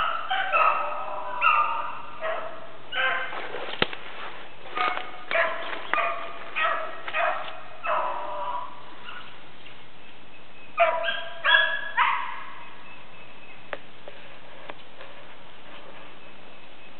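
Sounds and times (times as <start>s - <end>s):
dogs baying: 0.0s - 3.4s, 4.7s - 9.3s, 10.8s - 12.6s.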